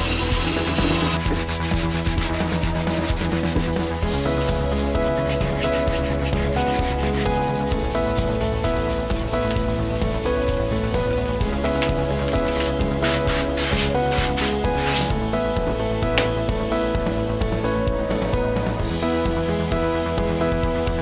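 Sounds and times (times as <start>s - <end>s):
sandpaper scraping metal: 0.0s - 15.2s.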